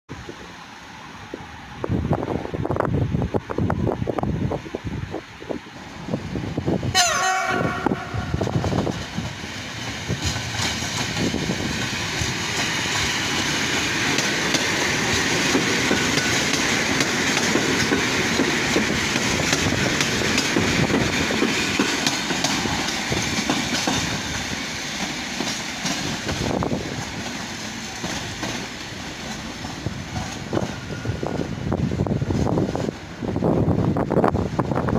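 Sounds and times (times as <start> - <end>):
train horn blast: 6.9 - 8.6
train wheels clattering over rails: 7.7 - 33.0.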